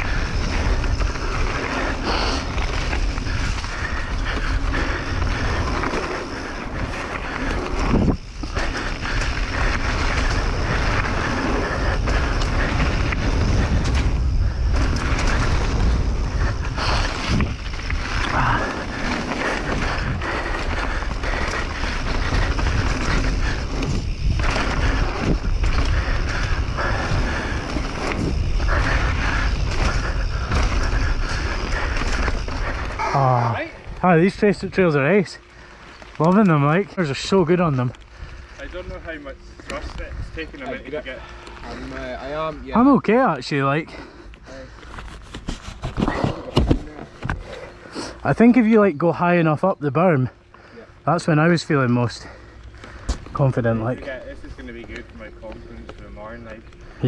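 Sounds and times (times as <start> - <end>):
wind buffeting microphone: 0.0 - 36.2, 38.0 - 42.7
bike jolts: 0.0 - 57.0
bike rattling: 0.0 - 57.0
bike tyres rolling on dirt: 0.0 - 57.0.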